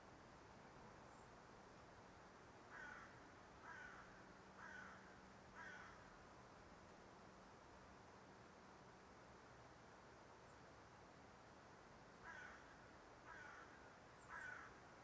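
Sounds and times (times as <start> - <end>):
quiet hiss: 0.0 - 15.0
crow cawing: 2.7 - 6.0, 12.2 - 12.7, 13.3 - 14.8.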